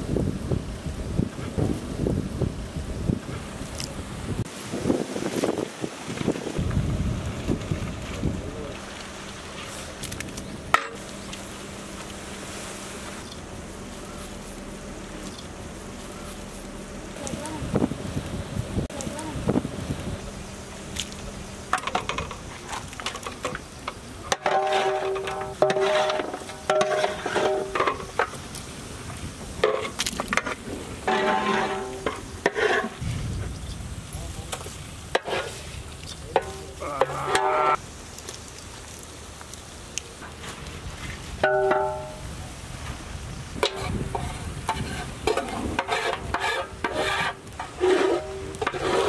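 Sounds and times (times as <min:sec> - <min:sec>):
metal spoon scraping metal pot: 0:24.3 - 0:28.2, 0:29.6 - 0:33.0, 0:43.6 - 0:49.0
pot ringing: 0:41.4 - 0:42.3.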